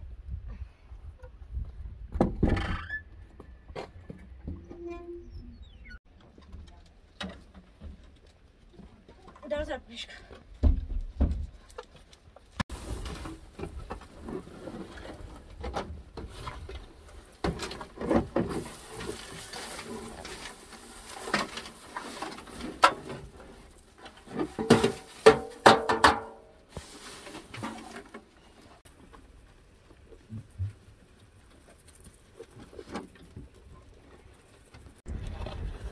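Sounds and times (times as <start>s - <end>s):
dry hay rustling: 12.3s - 15.6s, 16.2s - 25.7s, 26.4s - 35.0s
knocks and scrapes on metal: 24.0s - 26.6s.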